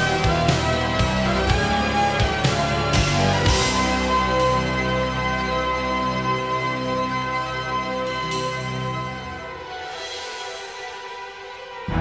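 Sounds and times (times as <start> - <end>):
game music with steady beat: 0.0 - 12.0.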